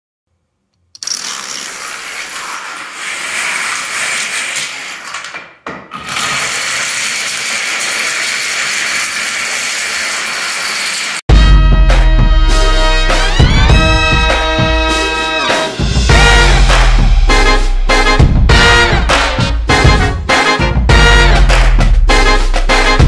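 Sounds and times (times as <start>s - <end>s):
plastic dominoes clattering: 1.0s - 11.2s.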